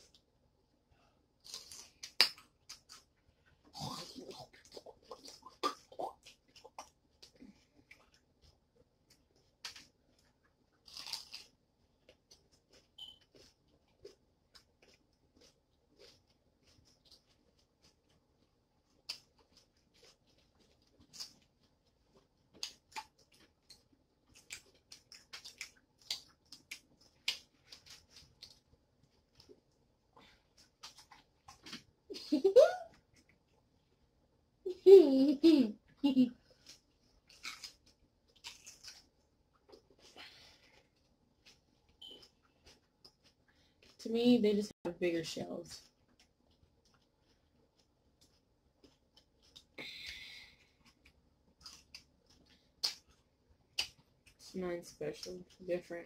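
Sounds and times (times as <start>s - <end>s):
sharp clicks of seafood being eaten: 1.4s - 3.1s, 50.8s - 54.4s.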